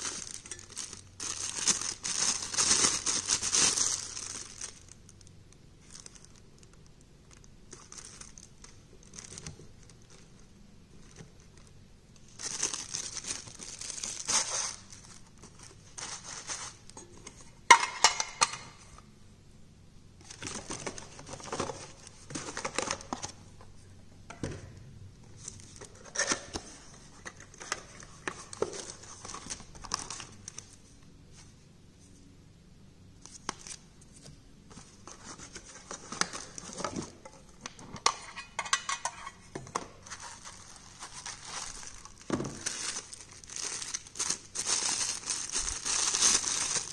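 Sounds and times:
plastic bag crinkling: 0.0s - 17.0s, 40.0s - 46.9s.

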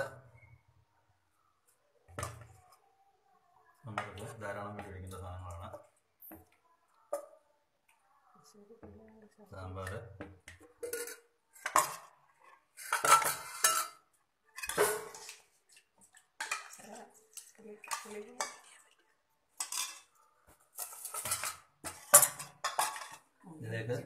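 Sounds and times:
metal spoon clinking on bowls: 9.6s - 15.4s, 16.4s - 18.9s, 19.6s - 23.3s.

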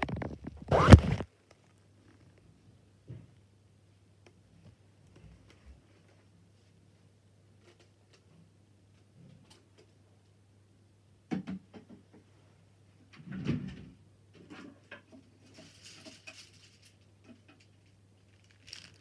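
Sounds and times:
faint steady hum: 0.0s - 19.0s
rustle: 18.2s - 19.0s.

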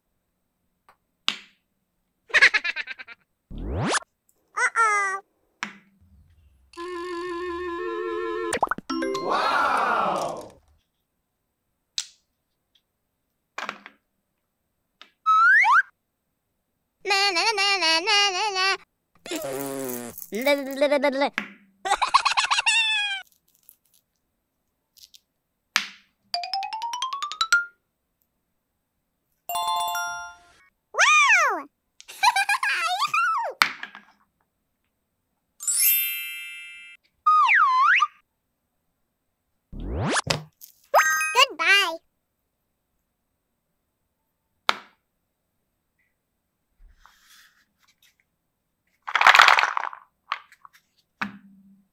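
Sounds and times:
cartoon rising notes effect: 3.5s - 4.0s, 6.7s - 10.0s, 39.8s - 40.3s.

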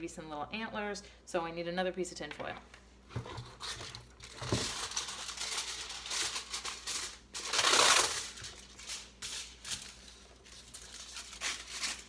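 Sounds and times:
aluminium foil crinkling: 3.5s - 12.0s
foil sheet ripping: 3.6s - 12.0s.

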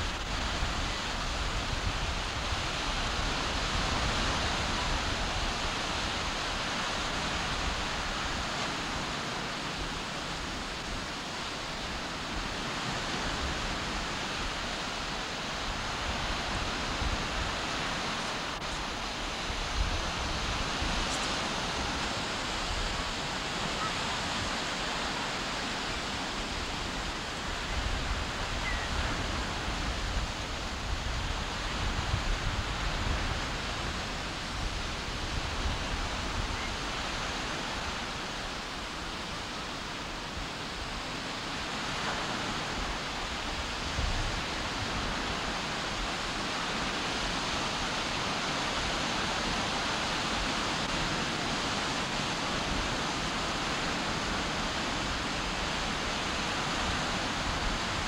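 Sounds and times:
small waves on shore: 0.0s - 58.0s
wind buffeting microphone: 15.4s - 24.9s.

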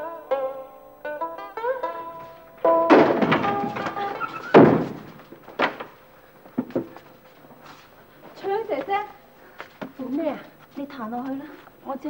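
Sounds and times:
plucked string music: 0.0s - 5.8s
heavy thunks with ringing tails: 2.6s - 5.8s.

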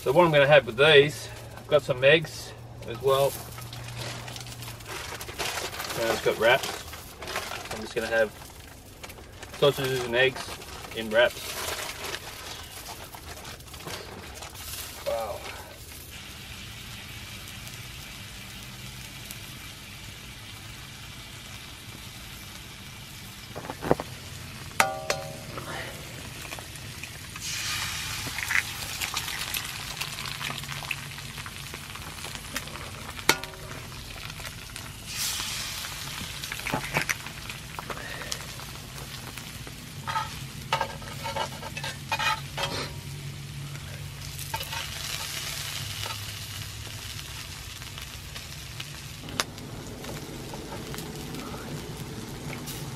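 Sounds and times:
sausages sizzling in a pan: 0.0s - 52.9s
egg hissing in hot oil: 14.5s - 41.8s, 42.4s - 52.9s
spatula clinking on pan: 24.8s - 25.5s.

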